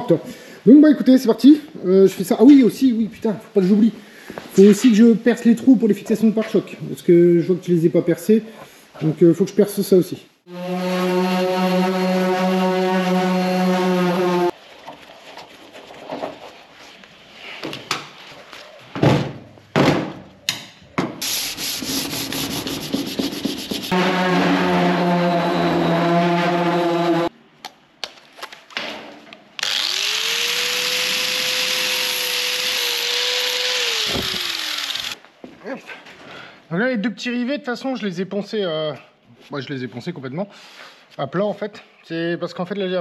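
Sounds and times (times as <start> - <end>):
power sander hissing: 10.5 - 14.5, 21.2 - 27.3, 29.6 - 35.2
electric drill running: 29.6 - 35.2.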